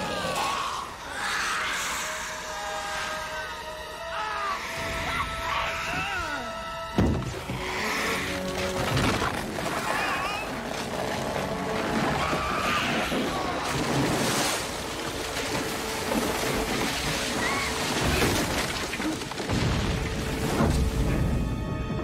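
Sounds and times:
dramatic film score: 0.0s - 22.0s
water crashing and splashing: 7.0s - 22.0s
tree crashing into river: 8.8s - 21.3s.

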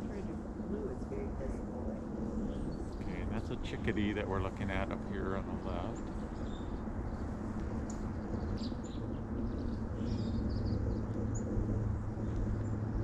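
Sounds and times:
steady low rumble: 0.0s - 13.0s
songbirds chirping: 2.3s - 11.5s.

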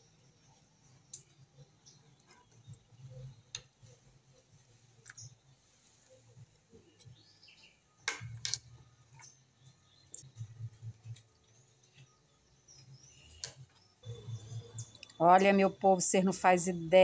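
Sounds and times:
faint bird chirps: 8.9s - 15.8s.

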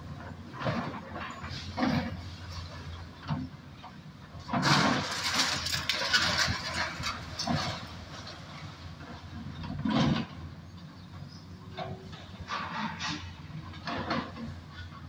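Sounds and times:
demolition machinery rumbling: 0.0s - 15.0s
machinery clanking and clattering: 0.2s - 10.4s, 11.7s - 15.0s.

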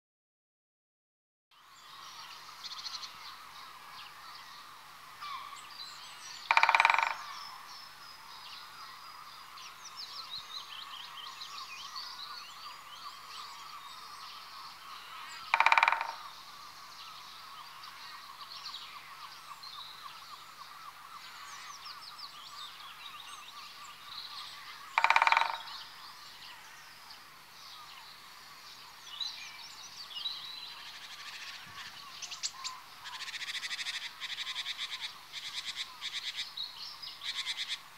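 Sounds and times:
small birds twittering: 1.6s - 37.9s
woodpecker calling: 5.2s - 8.0s, 10.1s - 28.0s, 30.7s - 37.9s.

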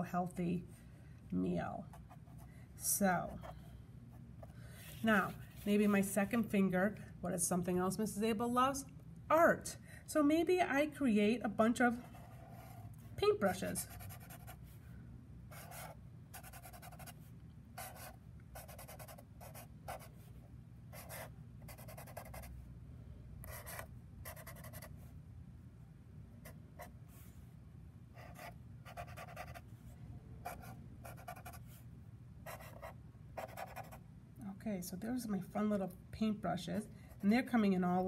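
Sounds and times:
marker scratching on paper: 13.8s - 14.6s, 15.5s - 17.2s, 17.8s - 20.1s, 20.9s - 22.5s, 23.4s - 24.9s, 28.2s - 29.6s, 30.4s - 31.7s, 32.5s - 34.0s.

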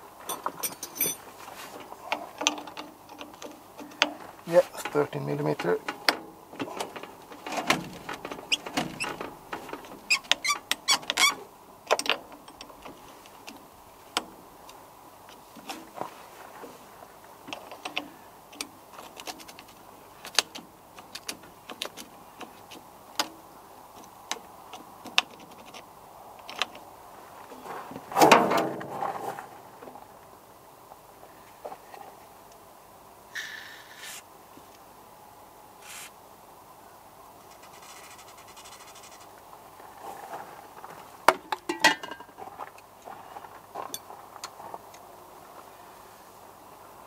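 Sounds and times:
metal clinking: 0.2s - 1.3s
squeaking scrape: 6.6s - 11.5s.

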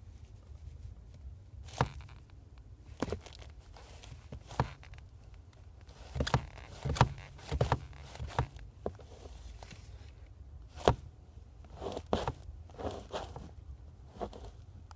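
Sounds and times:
pedal knocks and creaks: 1.7s - 2.3s, 4.3s - 5.0s, 6.1s - 9.0s.

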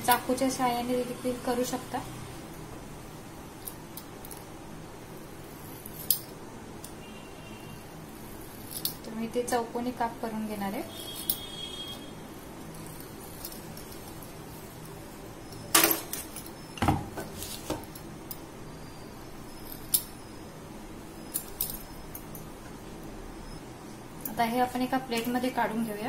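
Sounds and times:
low steady hum: 0.0s - 26.0s
metallic clicks and clinks: 5.8s - 7.0s, 8.6s - 9.1s, 12.7s - 16.7s, 21.2s - 22.5s.

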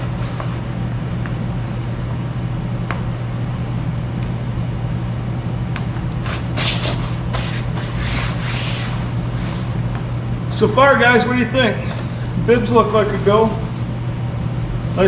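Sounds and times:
low mechanical hum: 0.0s - 15.0s
fabric rustling and scraping: 6.2s - 10.1s.

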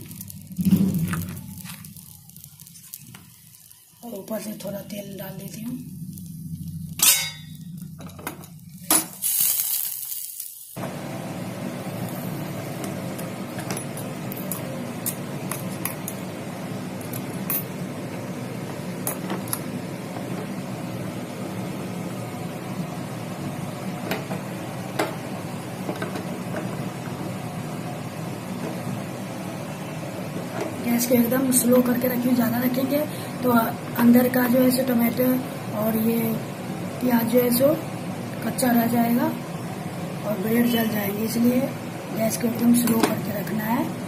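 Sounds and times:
sandwich sizzling with pops: 0.0s - 31.4s.

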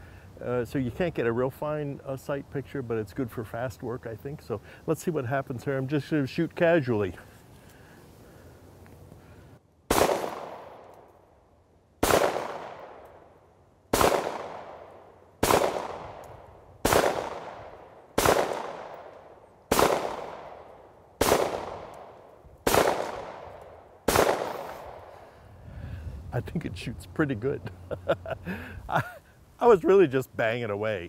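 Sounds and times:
pistol shots with echo: 9.9s - 10.8s, 12.0s - 13.0s, 13.9s - 16.2s, 16.8s - 19.1s, 19.7s - 25.0s.

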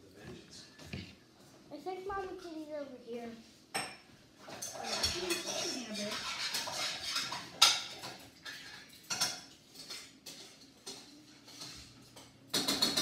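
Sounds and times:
dishes and utensils clinking: 3.7s - 13.0s.

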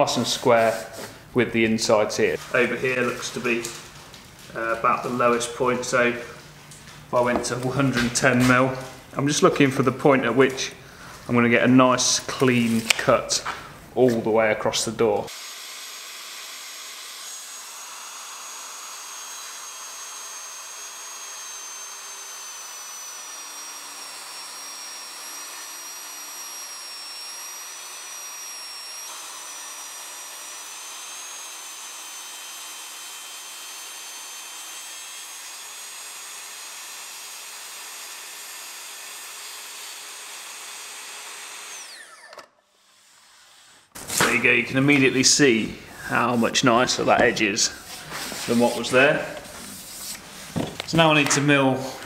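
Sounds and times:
track saw cutting wood: 15.3s - 44.3s.

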